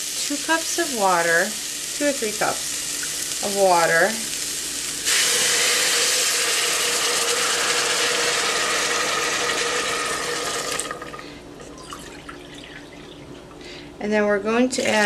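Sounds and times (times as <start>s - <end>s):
hot oil hissing and sizzling: 0.0s - 11.0s
water pouring into pot: 5.1s - 13.3s.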